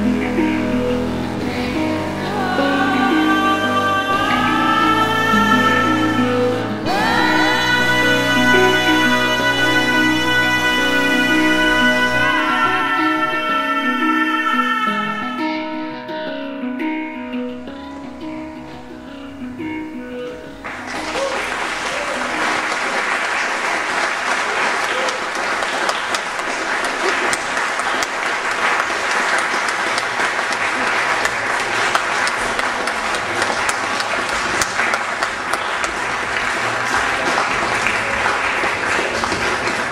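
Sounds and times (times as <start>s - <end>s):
music: 0.0s - 24.1s, 28.7s - 39.9s
audience applause: 20.6s - 39.9s.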